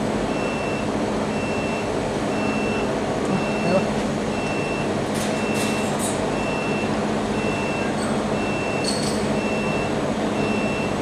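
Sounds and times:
machinery hum: 0:00.0 - 0:11.0
metallic clink: 0:08.8 - 0:09.3.

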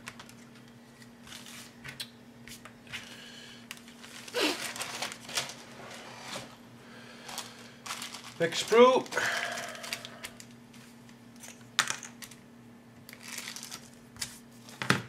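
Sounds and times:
plastic bag crinkling: 0:03.7 - 0:06.5, 0:07.2 - 0:10.6, 0:13.1 - 0:14.1.

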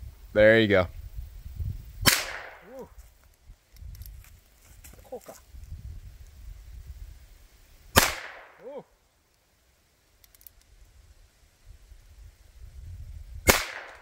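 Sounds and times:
faint clicks: 0:10.2 - 0:10.7.

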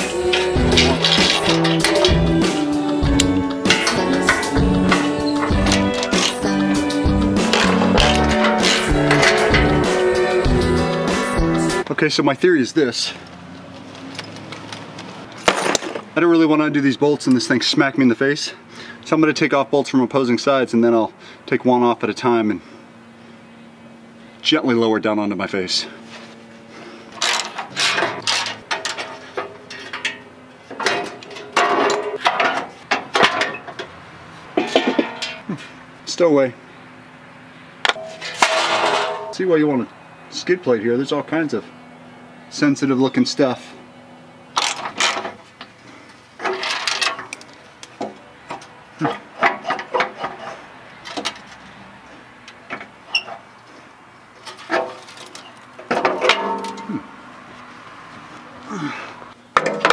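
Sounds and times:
ringing metal clatter: 0:00.0 - 0:02.3, 0:34.6 - 0:35.5, 0:37.9 - 0:39.5, 0:54.5 - 0:57.0
metal skid plate knocking and clanking: 0:34.6 - 0:35.4, 0:37.9 - 0:39.4, 0:55.9 - 0:56.9.

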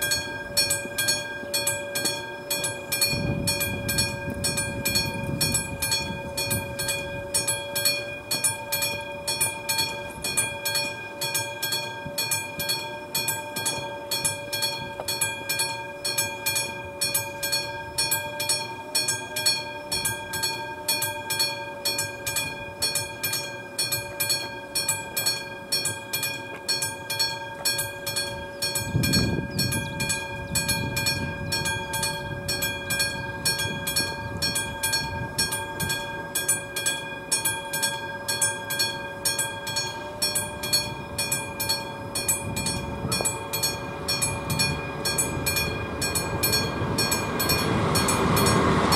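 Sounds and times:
level crossing bell ringing: 0:00.0 - 0:48.9.

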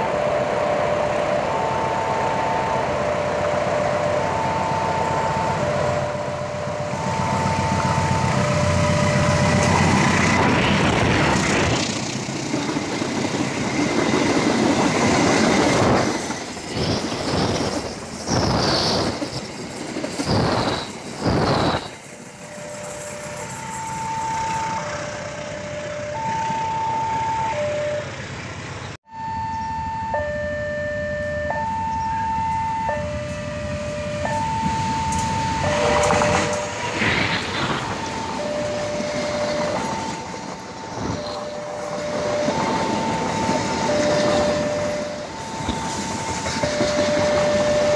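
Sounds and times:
two-tone crossing alarm: 0:00.0 - 0:11.8, 0:20.2 - 0:28.2, 0:29.0 - 0:47.9
train wheels rumbling and clattering: 0:04.3 - 0:25.4, 0:32.5 - 0:47.9.

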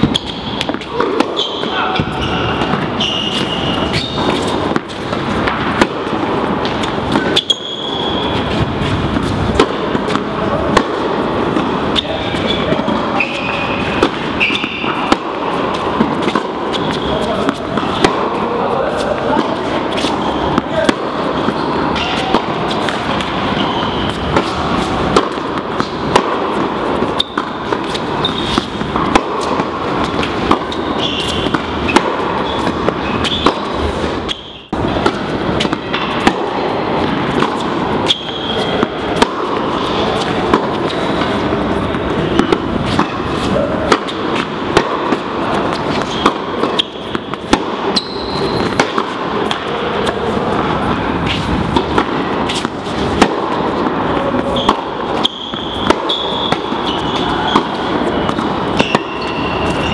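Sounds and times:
ball bouncing on court: 0:00.0 - 0:59.9
loud background noise: 0:00.0 - 0:59.9
rackets striking tennis ball: 0:00.0 - 0:59.9.

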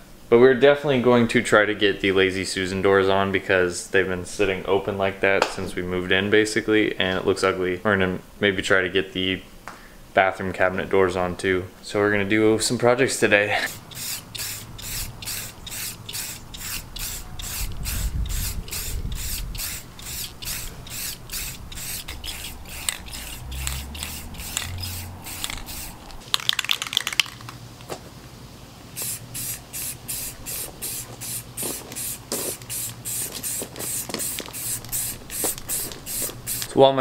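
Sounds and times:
spray can hissing: 0:13.6 - 0:27.5, 0:29.0 - 0:36.7
rattle of sharp clicks: 0:21.7 - 0:27.6.

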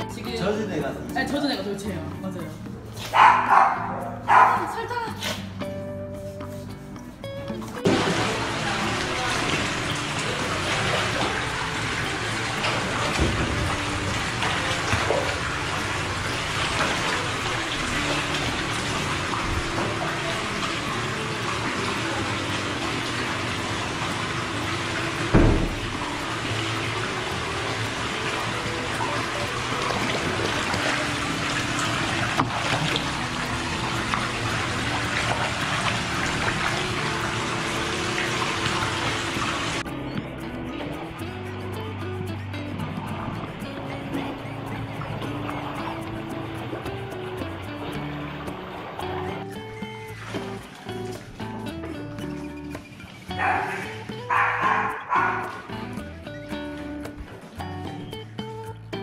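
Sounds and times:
water splashing and sloshing: 0:01.7 - 0:58.3
steady rush of water: 0:07.8 - 0:39.9.

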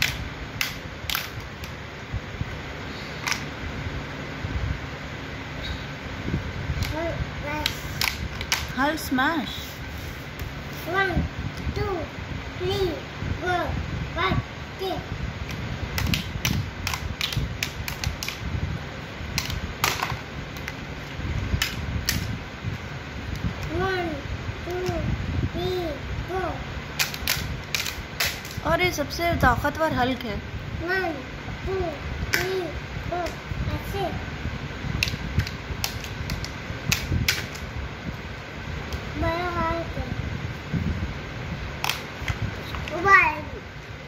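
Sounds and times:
plastic action figures clacking: 0:27.0 - 0:28.6.

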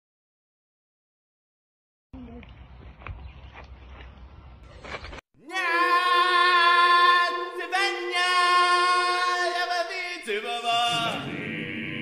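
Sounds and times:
voices singing held note: 0:05.4 - 0:12.0.

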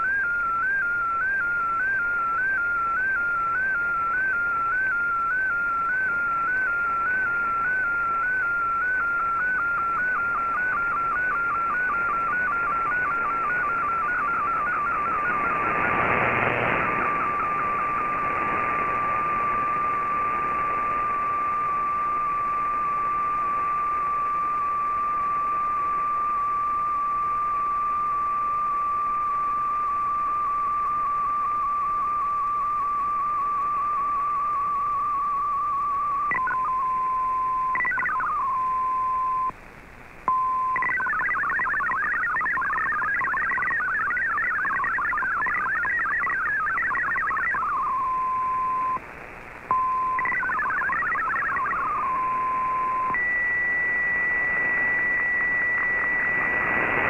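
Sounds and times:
steady whistle-like radio tone: 0:00.0 - 0:39.6, 0:40.3 - 0:57.0
warbling digital data bursts: 0:05.4 - 0:23.6, 0:36.3 - 0:36.8, 0:37.7 - 0:38.5, 0:40.7 - 0:49.0, 0:49.7 - 0:57.0.

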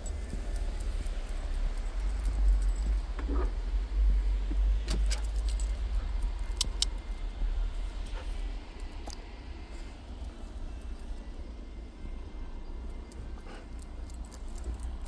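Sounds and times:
leash and collar clinking: 0:00.0 - 0:03.5, 0:04.9 - 0:07.2, 0:13.0 - 0:15.0.

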